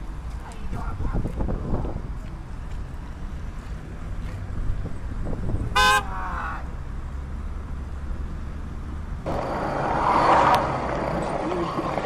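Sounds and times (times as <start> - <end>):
low rumble of traffic: 0.0 - 12.0
car horn toot: 5.7 - 6.4.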